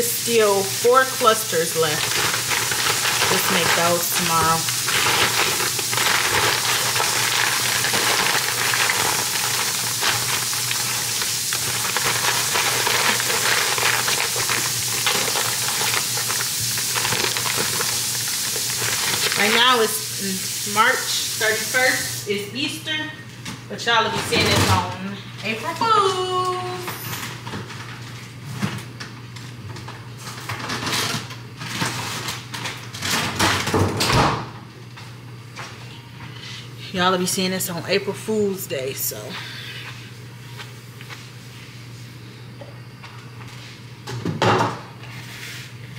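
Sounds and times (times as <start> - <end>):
paper crinkling and rustling: 1.9 - 19.6.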